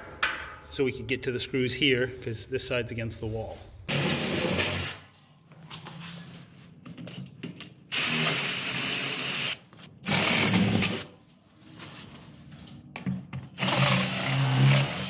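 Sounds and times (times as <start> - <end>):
cordless drill whining: 7.9 - 11.1, 13.6 - 15.0.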